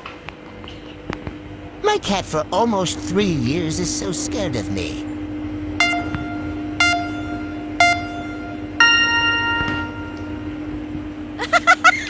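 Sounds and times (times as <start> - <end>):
low hum: 0.0 - 12.0
bell-like chime notes: 5.8 - 10.5.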